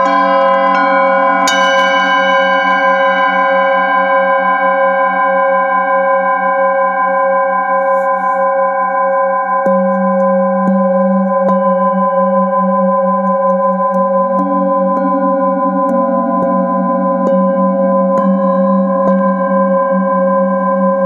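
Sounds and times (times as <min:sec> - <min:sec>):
mallet striking bowl: 0:00.0 - 0:03.0, 0:13.2 - 0:21.0
metal singing bowl ringing: 0:00.0 - 0:21.0.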